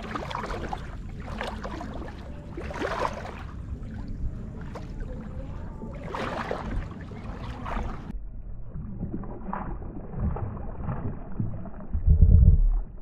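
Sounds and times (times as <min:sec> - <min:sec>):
wind rumble on microphone: 0:00.0 - 0:13.0.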